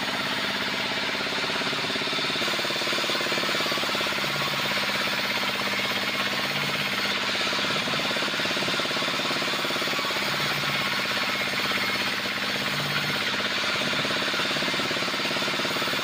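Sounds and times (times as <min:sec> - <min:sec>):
stationary engine knocking: 0:00.0 - 0:16.0.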